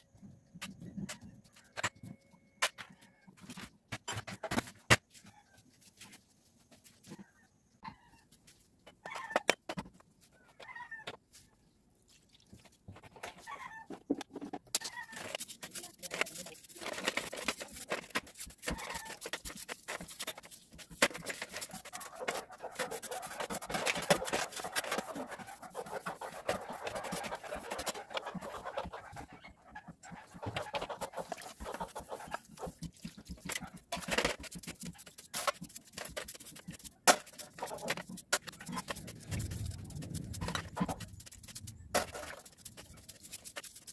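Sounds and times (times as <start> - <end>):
brush scrubbing: 12.1 - 43.9
liquid swishing: 15.2 - 43.9
chicken clucking: 22.0 - 32.8.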